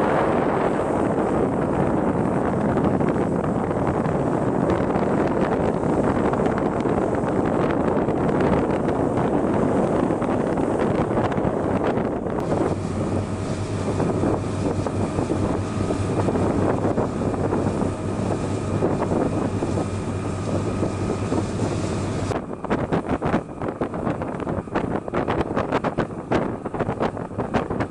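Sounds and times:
boat diesel engine drone: 0.0 - 27.9
rushing water: 0.0 - 27.9
wind on microphone: 0.0 - 27.9
hiss of boat wake: 12.4 - 27.8.

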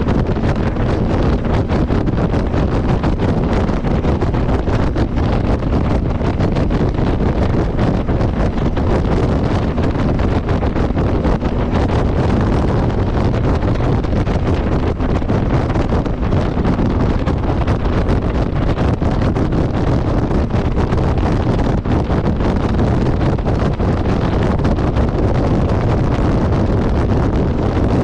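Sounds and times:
motorcycle running: 0.0 - 28.0
wind buffeting microphone: 0.0 - 28.0.

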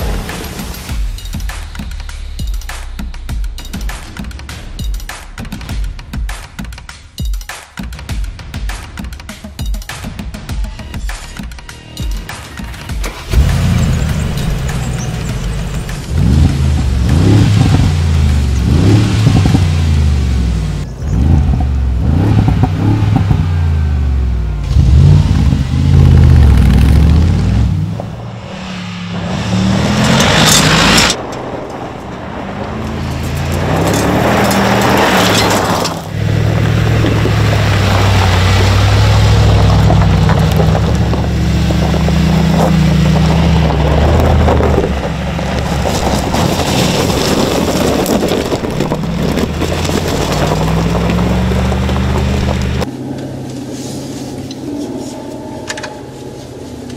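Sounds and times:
car engine revving: 12.9 - 56.9.

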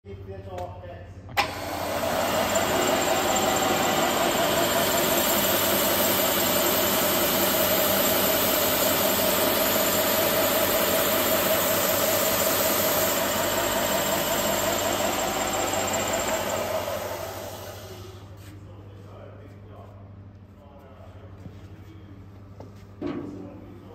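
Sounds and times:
edge sander whining: 1.4 - 18.3.

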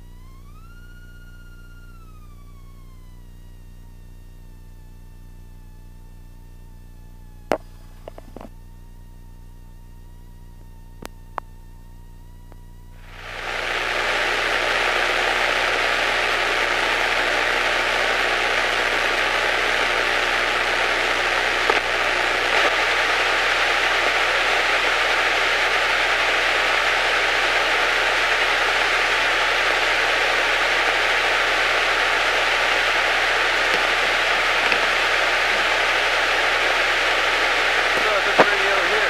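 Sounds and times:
radio static hiss: 7.4 - 8.6, 13.0 - 39.0.

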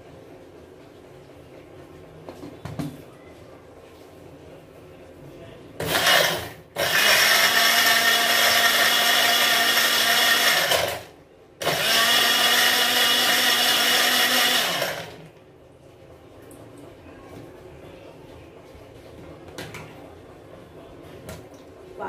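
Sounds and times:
blender motor running: 5.8 - 15.3.

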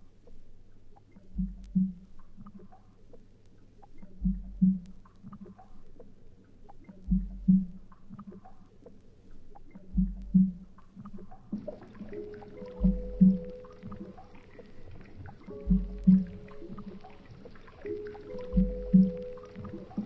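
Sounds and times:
steady held tones: 12.1 - 17.1.

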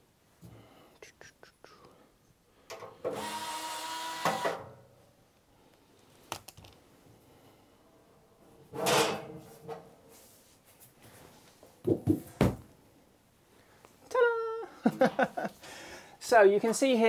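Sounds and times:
cordless drill running: 3.1 - 4.6
metal lid scraping clatter: 8.7 - 9.8.

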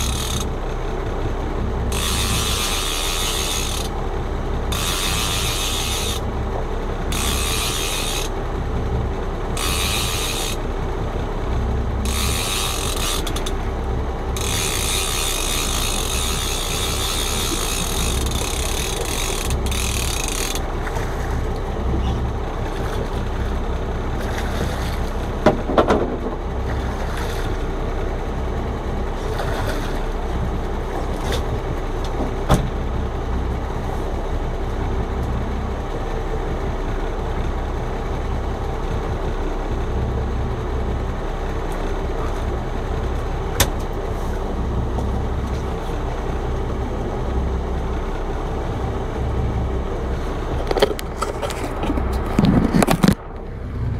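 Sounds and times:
fishing reel clicking: 0.0 - 0.5, 1.9 - 3.9, 4.7 - 6.2, 7.1 - 8.3, 9.6 - 10.6, 12.0 - 13.6, 14.4 - 20.7
boat engine humming: 0.0 - 53.9.

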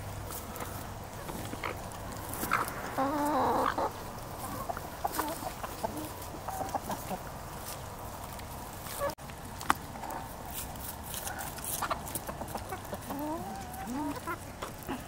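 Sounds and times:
chickens clucking softly: 0.3 - 7.6, 11.2 - 15.0
hen drawn-out call: 2.4 - 6.9.

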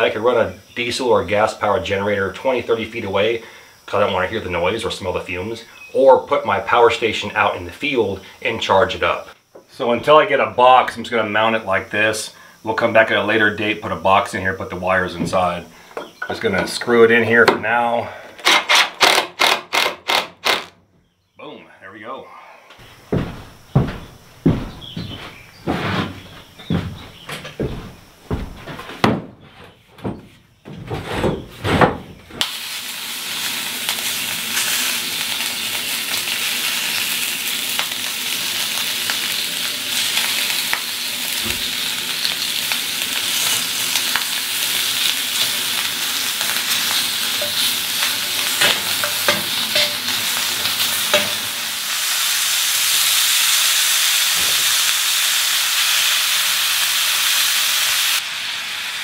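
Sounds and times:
bacon sizzling in a pan: 32.4 - 59.0.

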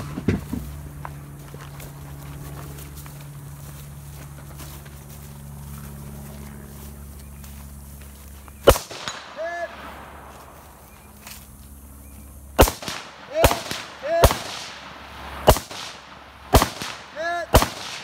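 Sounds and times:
rifle shots: 8.6 - 11.0, 12.6 - 18.0.

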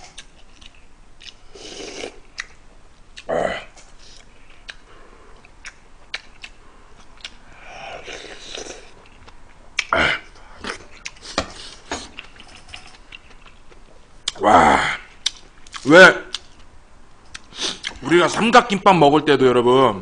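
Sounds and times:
person chewing: 0.0 - 14.4, 15.0 - 16.7, 17.3 - 18.0
mouth clicks and smacks: 0.1 - 3.3, 4.1 - 7.4
slurping: 7.7 - 9.1.

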